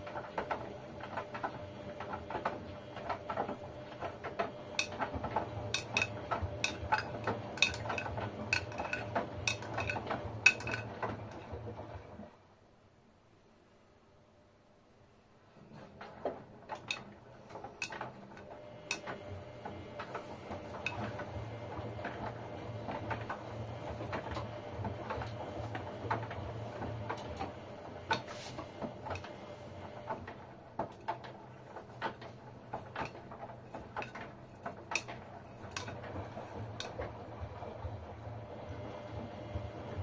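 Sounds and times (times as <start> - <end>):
washing machine motor hum: 0.0 - 12.5, 15.6 - 40.0.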